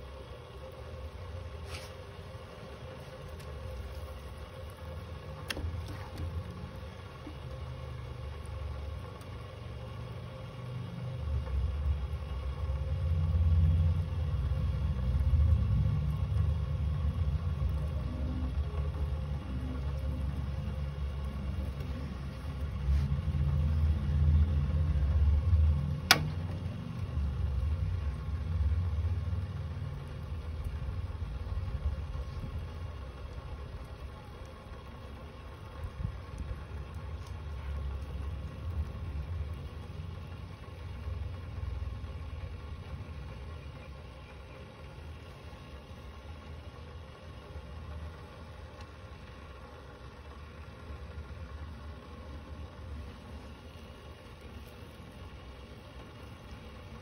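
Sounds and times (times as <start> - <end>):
sharp clicks: 26.0 - 27.0.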